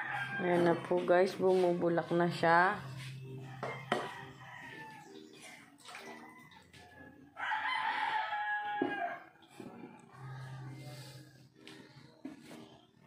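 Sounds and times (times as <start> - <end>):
rooster crowing: 3.4 - 5.2, 6.2 - 9.3.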